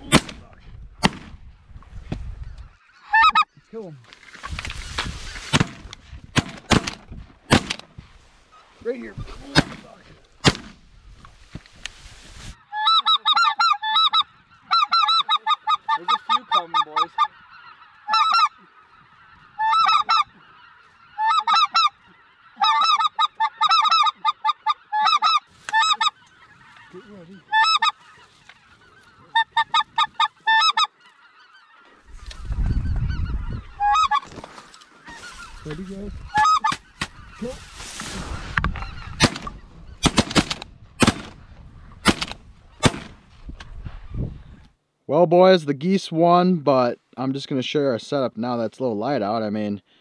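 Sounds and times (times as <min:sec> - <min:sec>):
shotgun shot: 0:00.0 - 0:01.4, 0:06.4 - 0:07.8, 0:09.5 - 0:10.8, 0:39.2 - 0:41.4, 0:42.0 - 0:43.2
geese honking in flight: 0:02.7 - 0:03.6, 0:12.5 - 0:40.5.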